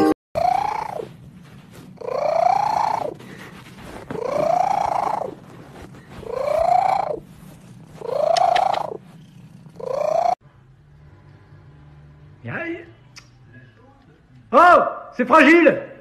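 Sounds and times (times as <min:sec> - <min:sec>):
cat meowing: 0:00.4 - 0:01.1, 0:02.0 - 0:03.2, 0:04.1 - 0:05.4, 0:06.2 - 0:07.2, 0:08.0 - 0:09.0, 0:09.8 - 0:10.4
cat purring: 0:00.4 - 0:10.4.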